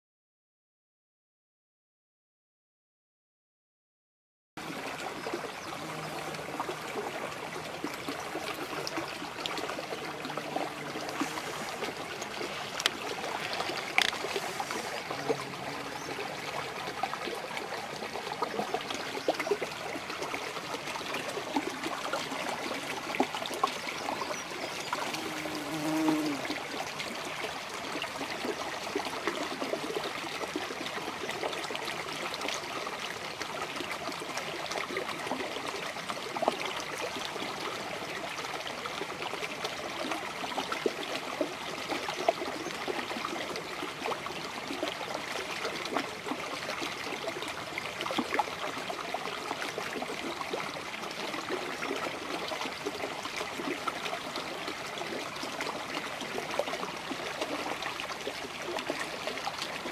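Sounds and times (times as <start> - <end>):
brook babbling: 4.6 - 59.9
water splashes: 4.6 - 59.9.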